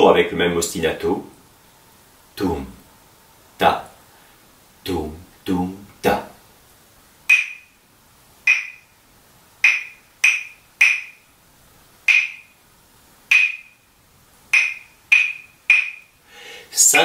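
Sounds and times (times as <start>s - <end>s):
wooden claves clacking: 7.3s - 7.8s, 9.6s - 11.2s, 12.1s - 12.5s, 13.3s - 13.8s, 14.5s - 16.1s.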